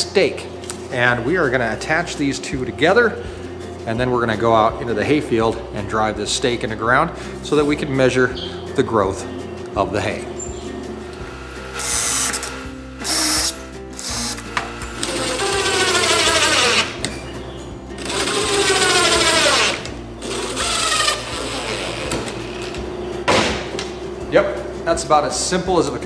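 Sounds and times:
impact driver driving screws: 0:11.8 - 0:17.0.

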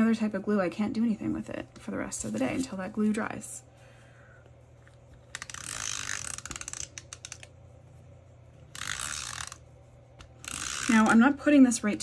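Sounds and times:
ratcheting clicks: 0:05.3 - 0:07.5, 0:08.8 - 0:09.6.

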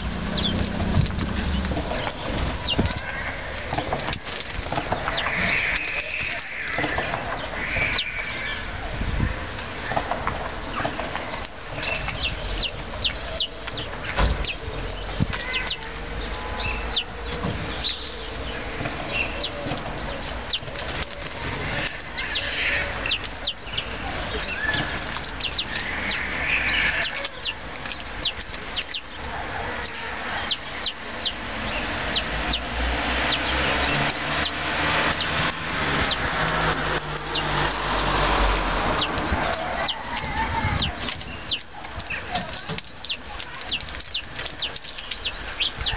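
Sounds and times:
small songbirds chirping: 0:00.0 - 0:45.9
beaks clicking on seeds: 0:11.4 - 0:29.2, 0:29.8 - 0:45.9.

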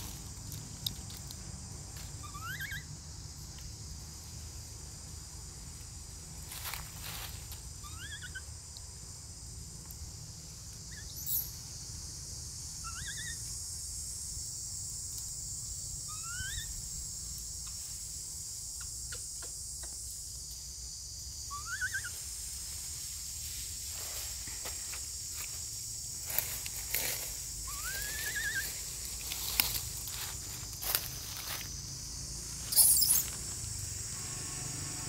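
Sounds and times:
forest insects droning: 0:00.0 - 0:35.0
short rising squeaky calls: 0:02.2 - 0:02.9, 0:07.8 - 0:08.4, 0:12.8 - 0:13.4, 0:16.1 - 0:16.8, 0:21.5 - 0:22.2, 0:27.7 - 0:28.8, 0:32.7 - 0:33.4.

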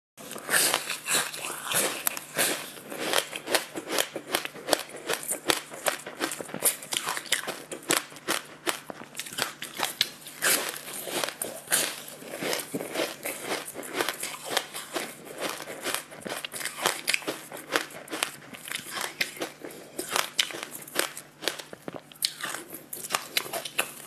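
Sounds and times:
crunching and chewing cracker: 0:00.2 - 0:24.0.

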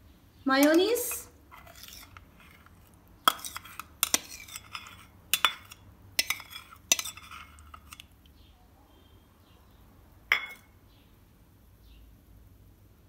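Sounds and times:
spoon clinking on glass bowl: 0:03.3 - 0:08.0, 0:10.3 - 0:10.7.

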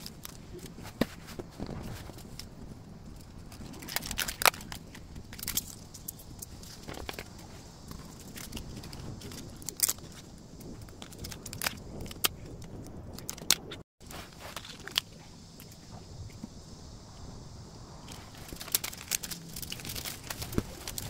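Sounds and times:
paper rustling: 0:13.2 - 0:15.0, 0:18.1 - 0:21.0.

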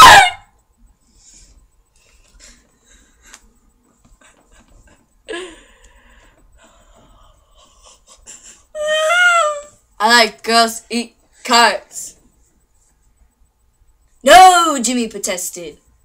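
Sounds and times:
breathing: 0:01.1 - 0:03.4, 0:05.3 - 0:08.0
stifled laughter: 0:02.5 - 0:05.8, 0:07.5 - 0:08.8.

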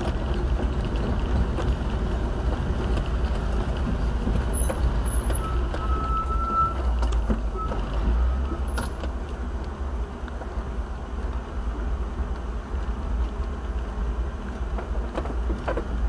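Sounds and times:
knocks and rattles: 0:00.0 - 0:06.2
vehicle driving over rough ground: 0:00.0 - 0:16.0
thin high squeak: 0:04.6 - 0:08.9.

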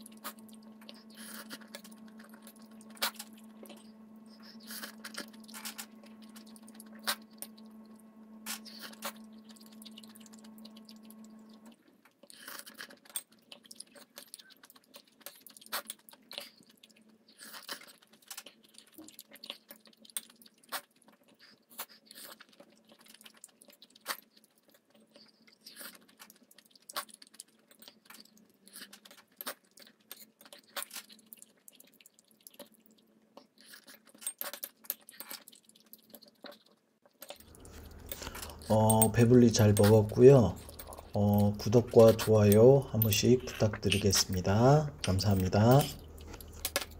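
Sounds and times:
steady low hum: 0:00.0 - 0:11.8, 0:37.4 - 0:46.9
chewing noodles: 0:00.0 - 0:46.9.

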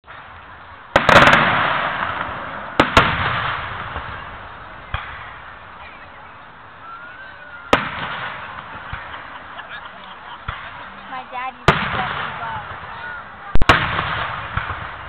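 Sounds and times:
firework crackling: 0:00.0 - 0:15.0
firework shells bursting: 0:00.1 - 0:05.8
echoing rumble: 0:00.1 - 0:15.0.

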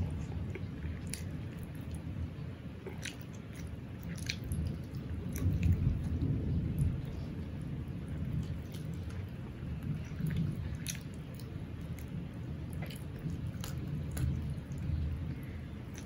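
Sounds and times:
man chewing food: 0:00.0 - 0:16.0
heavy rain rumble: 0:03.7 - 0:16.0.

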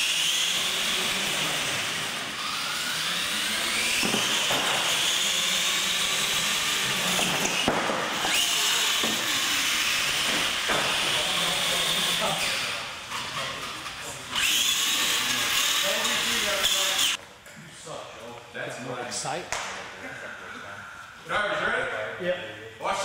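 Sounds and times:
electric toy trucks whining: 0:00.0 - 0:17.2.

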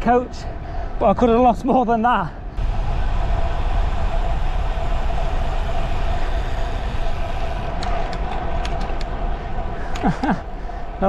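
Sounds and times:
bicycle road noise rumble: 0:02.3 - 0:11.0
constant low hum: 0:02.3 - 0:11.0
wind rushing over microphone: 0:02.4 - 0:11.0.

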